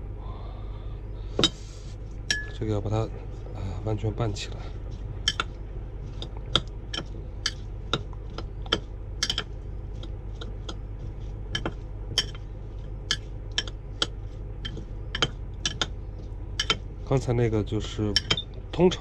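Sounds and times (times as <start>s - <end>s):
metal spoon clinking on glass dish: 2.3s - 2.6s, 16.6s - 16.8s, 18.2s - 18.4s.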